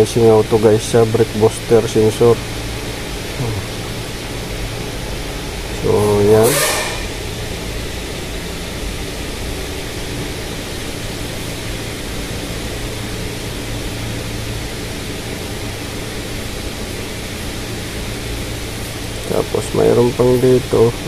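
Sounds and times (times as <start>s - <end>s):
even hiss: 0.0s - 4.9s, 5.5s - 7.9s, 16.3s - 21.0s
constant low hum: 0.0s - 21.0s.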